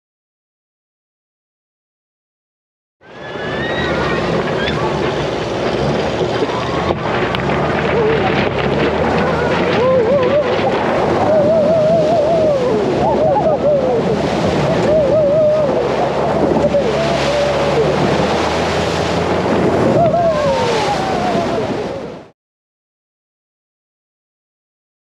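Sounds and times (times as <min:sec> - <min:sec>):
low engine rumble: 0:03.0 - 0:22.3
rushing water spray: 0:03.0 - 0:22.3
wind on microphone: 0:03.2 - 0:22.3
person singing or whooping: 0:11.2 - 0:14.2, 0:14.8 - 0:18.0, 0:20.0 - 0:21.8.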